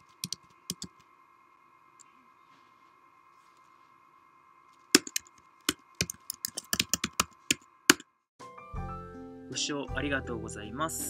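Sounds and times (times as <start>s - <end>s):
faint electrical hum: 0.0s - 8.1s
keyboard key clicks: 0.1s - 1.0s, 5.0s - 8.0s.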